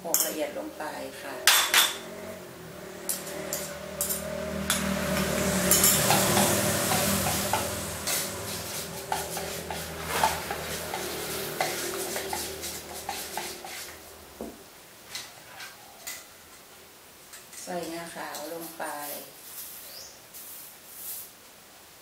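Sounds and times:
metal spoon stirring in a pot: 3.0s - 14.2s.

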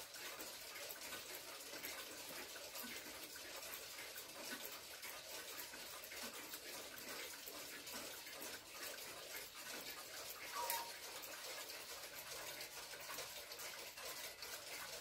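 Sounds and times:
clock ticking: 10.5s - 11.1s.

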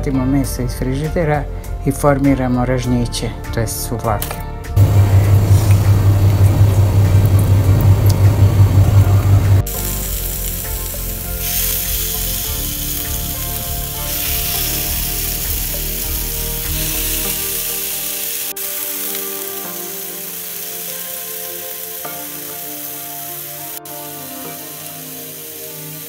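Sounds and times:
loud low rumble: 4.8s - 9.7s
chicken sizzling in grill pan: 9.6s - 26.0s.

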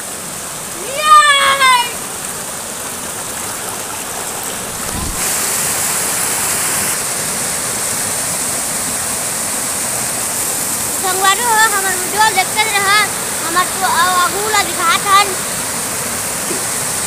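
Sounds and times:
water rushing over rocks: 0.0s - 17.0s
brief low thump: 4.8s - 5.4s.

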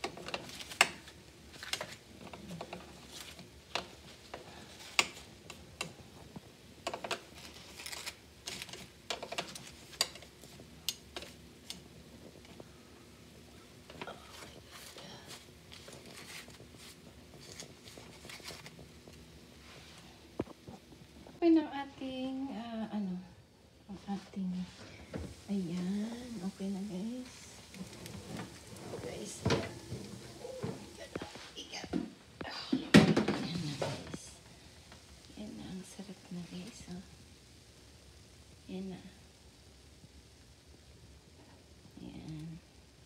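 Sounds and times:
leaf parcels clicking on metal tray: 0.0s - 6.0s, 6.8s - 11.8s.

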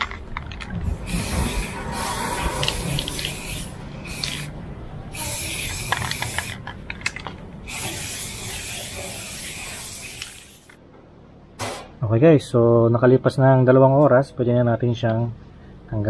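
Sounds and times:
aerosol spray can hissing: 1.0s - 6.6s, 7.7s - 10.8s.

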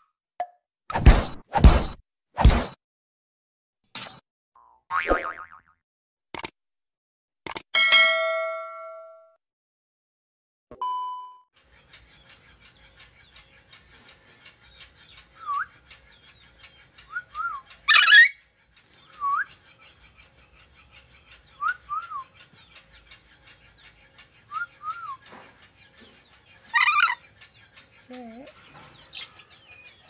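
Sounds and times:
harsh bird calls: 11.6s - 30.0s
bird whistling: 12.3s - 13.4s, 14.7s - 27.2s.

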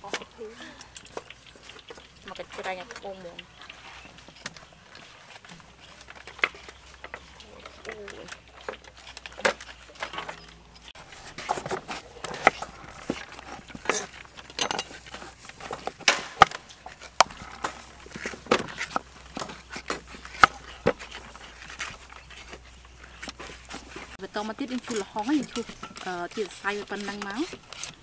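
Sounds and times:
knife scraping fruit on board: 11.0s - 28.0s.

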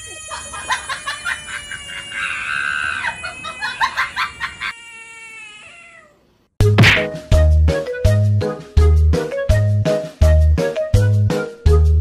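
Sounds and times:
frog distress scream: 1.5s - 3.2s, 4.4s - 6.2s
loud music: 6.7s - 7.4s.

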